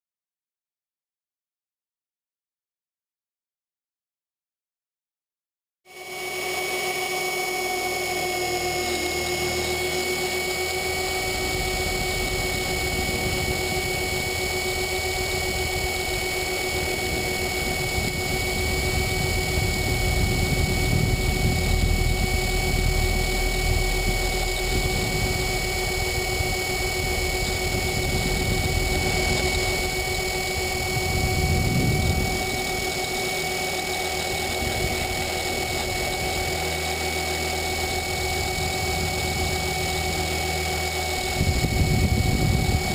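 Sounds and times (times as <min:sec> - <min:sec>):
rc helicopter motor whine: 0:05.9 - 0:42.9
low rumble: 0:09.1 - 0:42.9.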